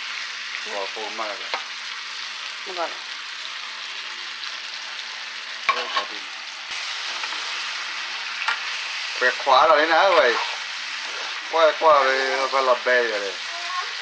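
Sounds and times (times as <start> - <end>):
vegetables sizzling in a frying pan: 0.0 - 14.0
spatula stirring in a pan: 6.8 - 14.0.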